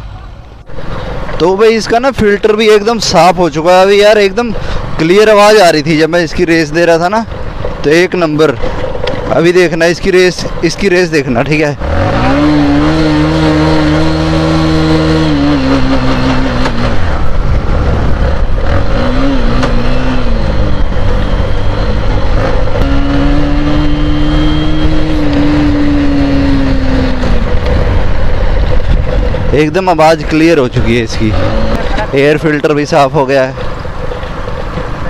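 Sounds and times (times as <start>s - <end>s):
motorcycle engine revving: 11.2s - 35.0s.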